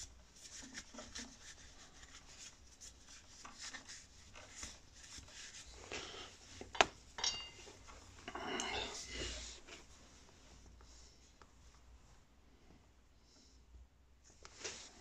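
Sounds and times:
metal clink with short ring: 0:07.2 - 0:07.7.

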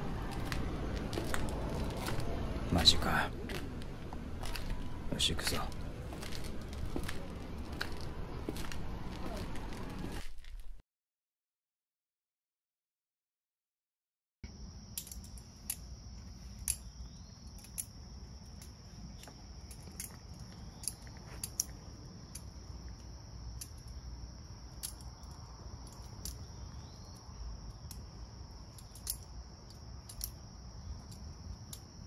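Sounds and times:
insects droning: 0:00.0 - 0:10.2, 0:14.4 - 0:32.0
low rumble: 0:00.0 - 0:10.8.

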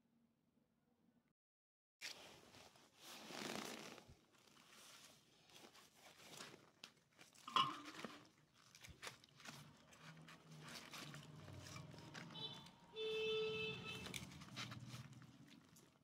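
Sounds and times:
crackly tearing of crisp skin: 0:05.4 - 0:12.7, 0:13.9 - 0:16.0.

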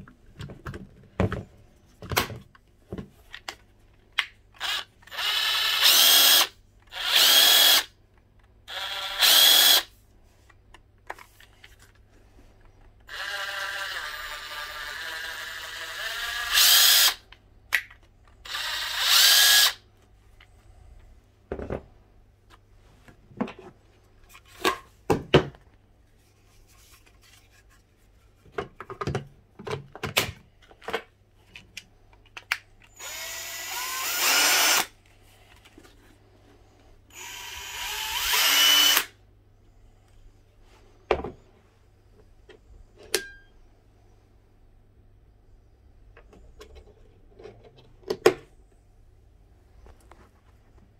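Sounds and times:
power tool motor whirring: 0:04.6 - 0:07.9, 0:18.5 - 0:19.8, 0:33.0 - 0:34.9, 0:37.1 - 0:39.1
tool handling clicks and knocks: 0:28.4 - 0:32.9.

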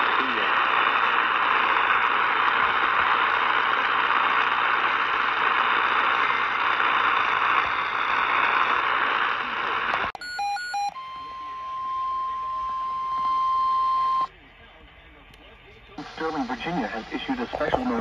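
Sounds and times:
radio static hiss: 0:00.0 - 0:10.1, 0:14.3 - 0:18.0
short electronic beeps: 0:10.2 - 0:14.3.

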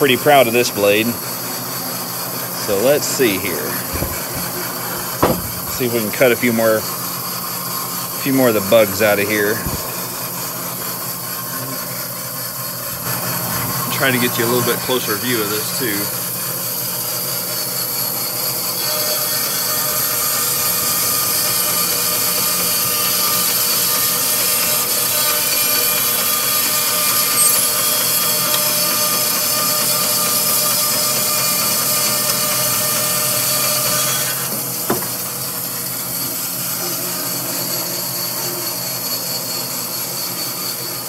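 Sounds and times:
bandsaw motor hum: 0:00.2 - 0:41.0
saw blade cutting wood: 0:00.3 - 0:07.0, 0:08.3 - 0:12.2, 0:18.7 - 0:41.0
short knock: 0:03.8 - 0:05.9.

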